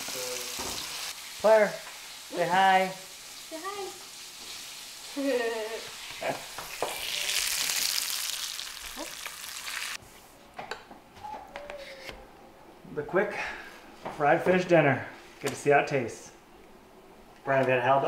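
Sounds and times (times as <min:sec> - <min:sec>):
fish sizzling in a skillet: 0:00.0 - 0:10.0.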